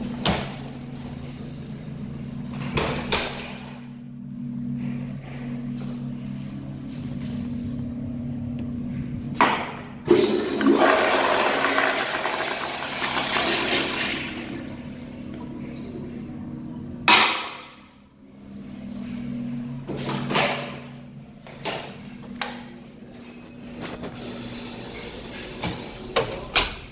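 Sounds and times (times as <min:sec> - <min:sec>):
steady low hum: 0:00.0 - 0:10.6, 0:13.6 - 0:26.9
toilet flushing: 0:10.0 - 0:16.1, 0:24.1 - 0:26.6.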